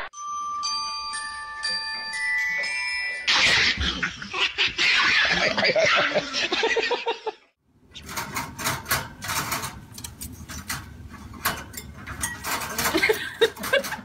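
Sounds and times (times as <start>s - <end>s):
birds rattling wire cage: 7.9s - 14.0s.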